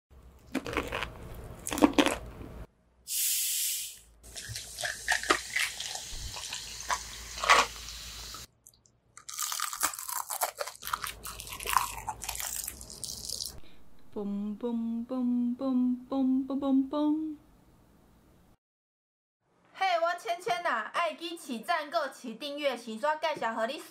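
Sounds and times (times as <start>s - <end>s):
crunchy bites of fried chicken: 0.4s - 2.3s, 9.2s - 13.5s
cola pouring and fizzing: 4.2s - 8.5s.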